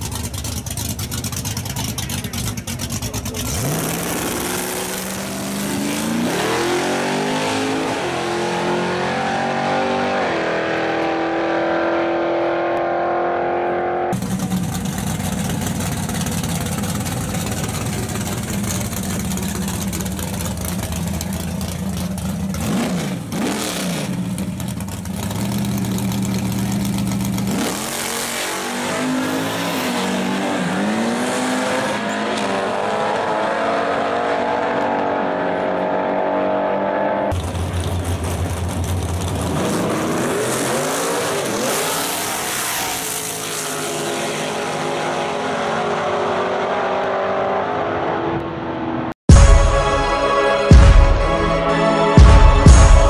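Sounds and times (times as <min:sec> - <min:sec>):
low engine rumble: 0:00.0 - 0:03.5, 0:14.2 - 0:23.4, 0:24.1 - 0:27.5, 0:37.3 - 0:39.6
racing car engine accelerating: 0:01.6 - 0:49.2.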